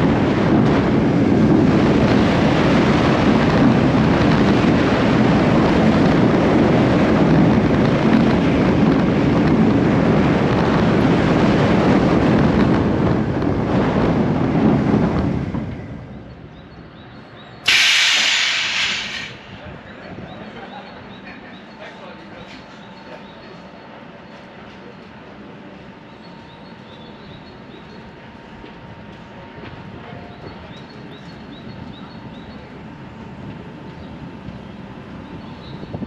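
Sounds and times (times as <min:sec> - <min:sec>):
wind rush on microphone: 0:00.0 - 0:16.9, 0:17.7 - 0:20.5, 0:28.2 - 0:36.0
roller coaster wheels rumbling: 0:00.0 - 0:36.0.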